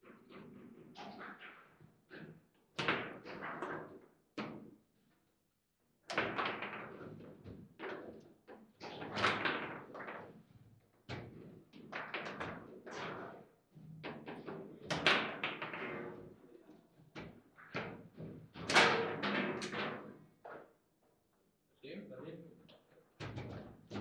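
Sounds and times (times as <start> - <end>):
foosball rods being worked: 17.0 - 20.7.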